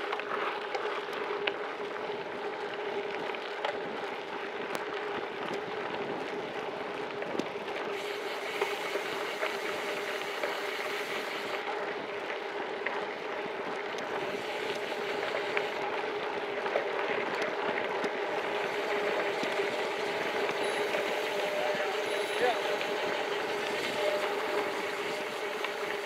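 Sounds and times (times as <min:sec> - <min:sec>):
grit ticking against bike: 0:00.0 - 0:26.0
buzzing hum: 0:18.4 - 0:26.0.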